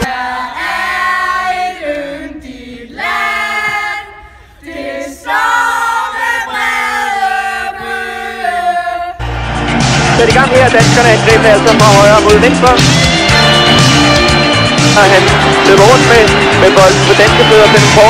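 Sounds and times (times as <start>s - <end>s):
women singing in chorus: 0.0s - 9.2s.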